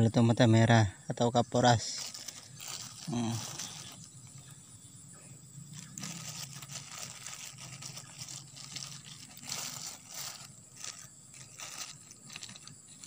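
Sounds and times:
plastic bag crinkling: 1.8 - 4.5, 5.6 - 13.0.

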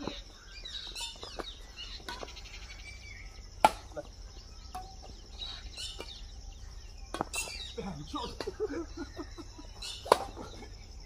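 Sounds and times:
birds chirping: 0.0 - 11.0
rackets hitting shuttlecock: 3.6 - 4.0, 7.1 - 7.6, 9.9 - 10.6.

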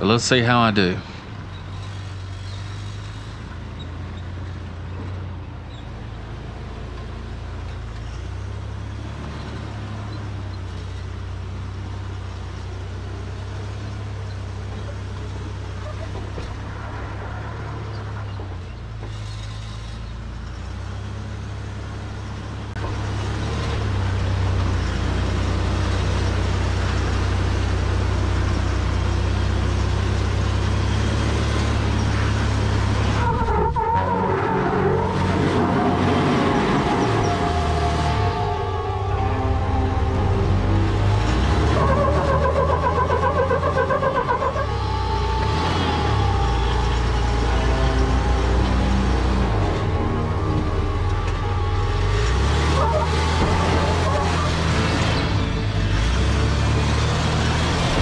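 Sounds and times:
truck engine at low revs: 0.0 - 58.0.

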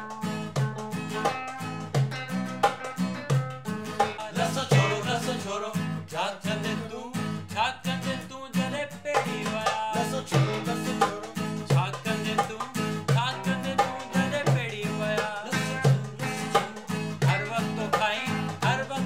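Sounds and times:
steady percussion beat: 0.0 - 5.4, 9.1 - 19.0
guitar: 0.0 - 19.0
bass line: 1.8 - 6.0.

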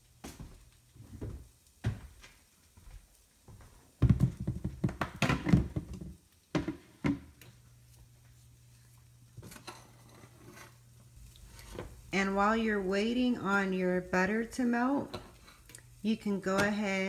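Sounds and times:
knocks and thumps: 4.0 - 7.3.

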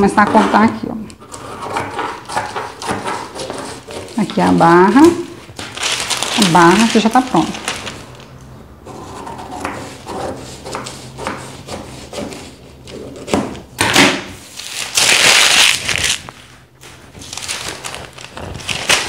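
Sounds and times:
scissors cutting paper: 0.0 - 6.9
paper sheets rustling and sliding: 4.9 - 8.3, 14.4 - 19.0.

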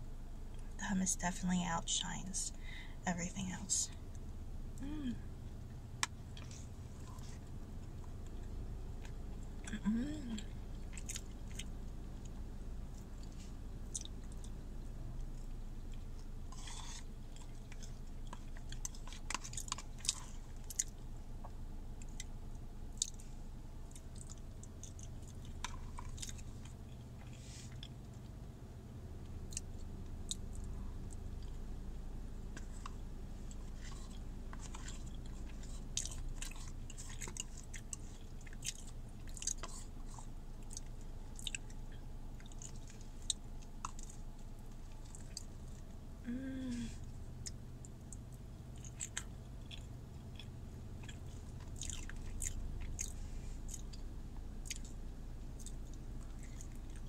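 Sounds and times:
steady low hum: 0.0 - 57.0
person chewing food: 4.8 - 57.0
eating smacks and clicks: 47.4 - 54.0.

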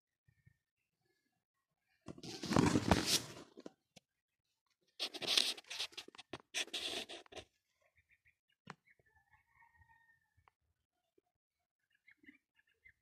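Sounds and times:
scratchy rustling and scraping: 2.1 - 3.7, 5.0 - 7.5.

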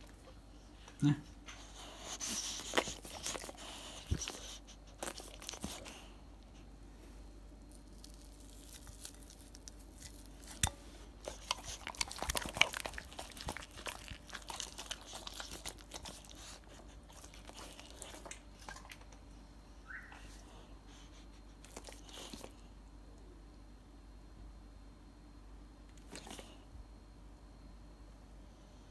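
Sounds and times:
dog chewing and lip-smacking: 1.4 - 6.1, 8.4 - 19.3, 21.0 - 22.6
fingers tearing chicken: 7.7 - 18.2.

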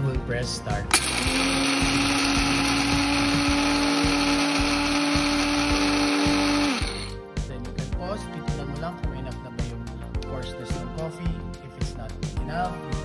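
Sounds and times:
electric coffee grinder running: 0.9 - 7.2.

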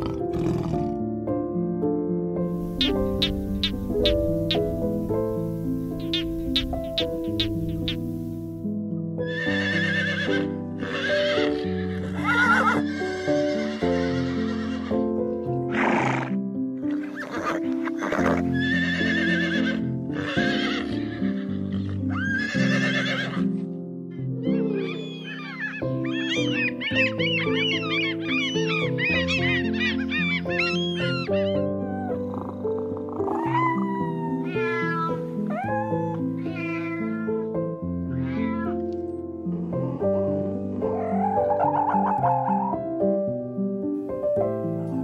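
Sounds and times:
background music: 0.0 - 45.0
horse whinnying: 9.2 - 14.9, 17.0 - 23.5, 24.5 - 37.4
cat meowing: 24.4 - 32.3, 33.3 - 38.9.

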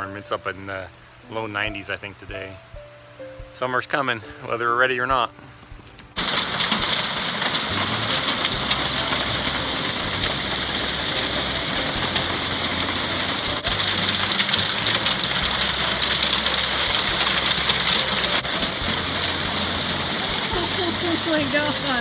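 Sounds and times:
heavy rain and hail on roof: 6.2 - 22.0.

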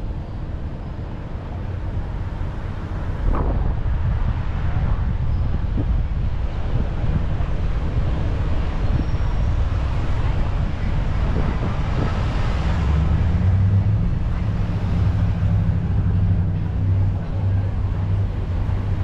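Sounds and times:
low engine hum: 0.0 - 19.0
road and wind rumble: 0.0 - 19.0.

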